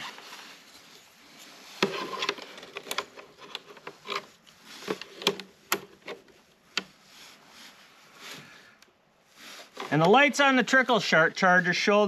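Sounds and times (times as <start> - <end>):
alligator clamps clicking and rattling: 1.8 - 6.3.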